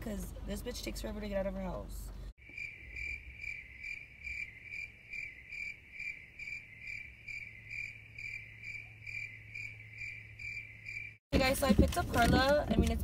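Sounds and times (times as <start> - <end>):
crickets chirping: 2.4 - 11.2.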